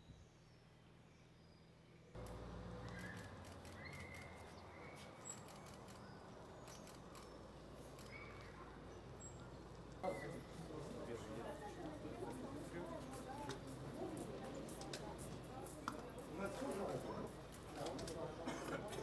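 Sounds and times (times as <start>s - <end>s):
bus engine low rumble: 0.1s - 10.0s
birds chirping: 0.1s - 11.3s.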